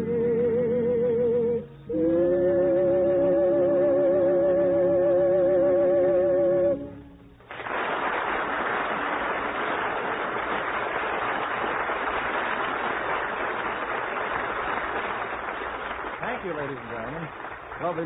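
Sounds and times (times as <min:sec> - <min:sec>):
audience applause: 0:07.4 - 0:18.0.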